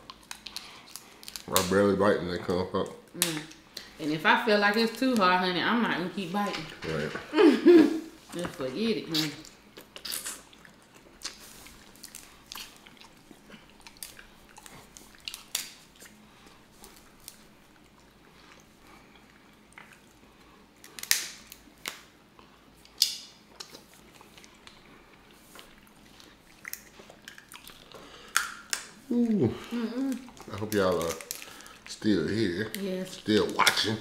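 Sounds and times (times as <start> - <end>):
wet chewing and sucking: 0.0 - 1.7, 9.1 - 32.0
crab shells cracking: 0.0 - 1.8, 9.4 - 16.2, 20.8 - 22.1, 22.9 - 23.8, 26.5 - 29.4, 30.0 - 34.0.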